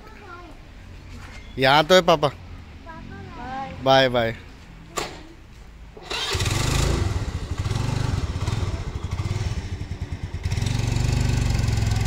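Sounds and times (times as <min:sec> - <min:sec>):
motorcycle engine idling: 0:07.2 - 0:12.0.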